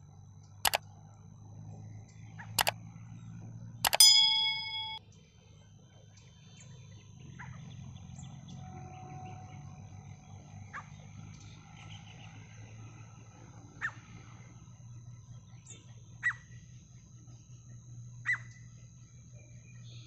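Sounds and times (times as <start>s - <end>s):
bell-like ding: 3.9s - 5.0s
click sound effects: 3.9s - 5.0s.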